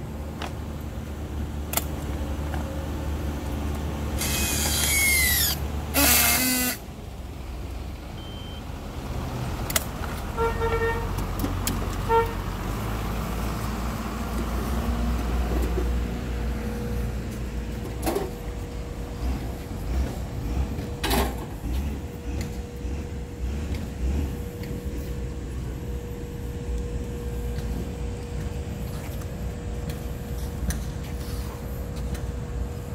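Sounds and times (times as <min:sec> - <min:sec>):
low rumble of yard machinery: 0:00.0 - 0:32.9
strapping tool whine and buzz: 0:04.1 - 0:06.9
short beeps: 0:08.2 - 0:08.6.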